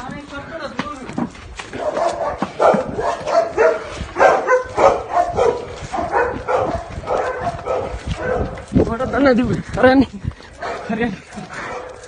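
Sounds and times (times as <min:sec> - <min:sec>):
dog barking: 0:01.8 - 0:08.7, 0:10.6 - 0:10.9, 0:11.6 - 0:12.0.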